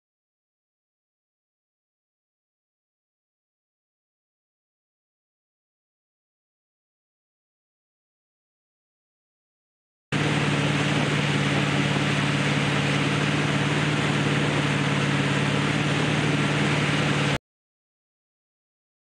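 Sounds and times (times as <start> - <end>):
boat engine running: 10.2 - 17.4
water rushing around hull: 10.2 - 17.4.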